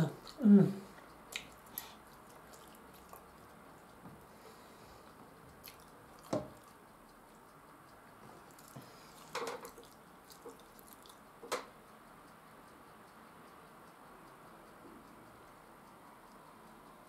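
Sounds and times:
wet mouth sounds of eating: 0.1 - 3.9, 5.5 - 6.8, 8.4 - 11.2.

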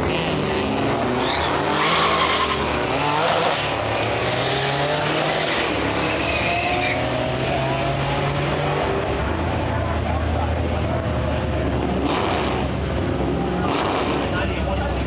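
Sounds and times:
engine revving through gears: 0.0 - 8.9, 11.9 - 12.8, 13.6 - 14.4
cars accelerating hard: 0.0 - 15.0.

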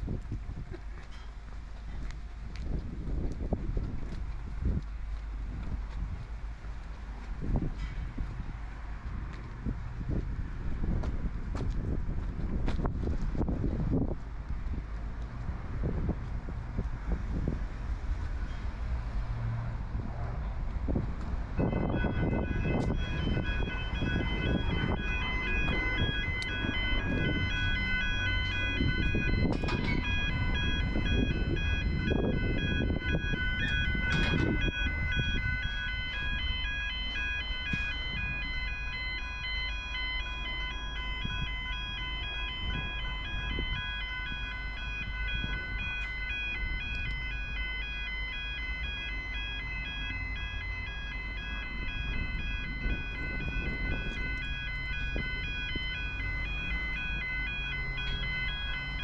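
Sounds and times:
low rumble: 0.0 - 59.0
level crossing warning bell: 4.6 - 10.2, 21.5 - 59.0.

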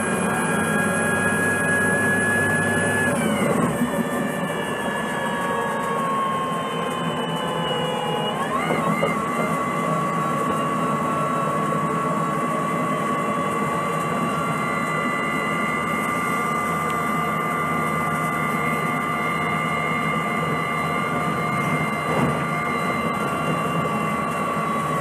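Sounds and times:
high whine: 0.0 - 25.0.

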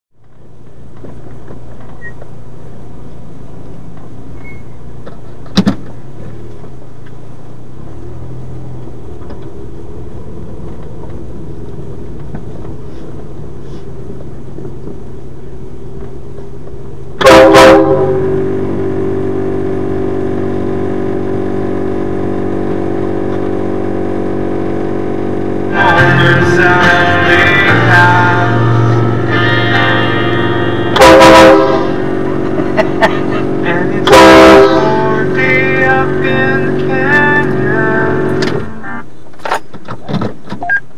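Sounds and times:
car driving drone: 0.1 - 40.6
muffled train horn blasts: 17.2 - 21.2, 25.8 - 32.5, 33.2 - 39.1.

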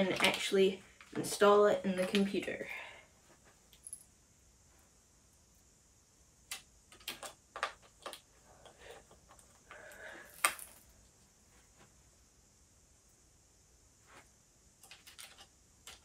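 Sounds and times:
small clicks and knocks: 6.5 - 9.8, 14.8 - 16.0.

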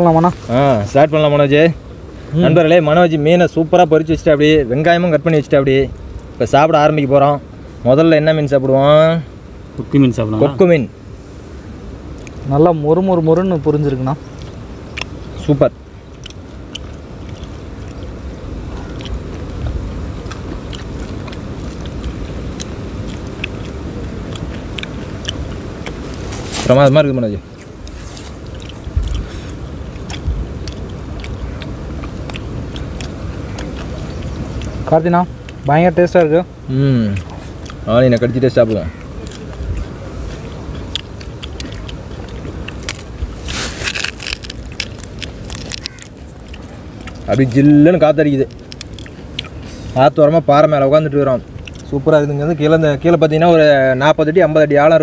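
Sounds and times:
crunching and chewing fried food: 12.1 - 53.6
wind rumble on microphone: 17.0 - 25.8, 28.4 - 34.9.

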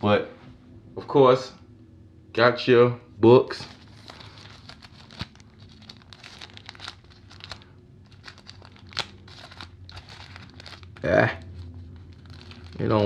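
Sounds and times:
plastic pouch crinkling and snapping: 3.7 - 13.0.

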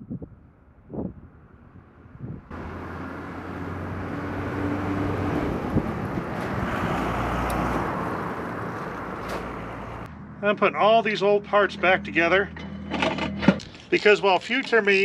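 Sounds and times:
wind rushing: 0.0 - 2.6, 3.6 - 9.6
road noise: 0.1 - 15.0
vehicle engine hum: 1.3 - 13.9.

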